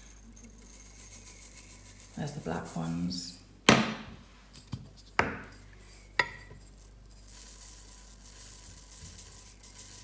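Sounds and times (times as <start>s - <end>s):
seeds pouring into bowl: 0.0s - 3.3s, 5.9s - 10.0s.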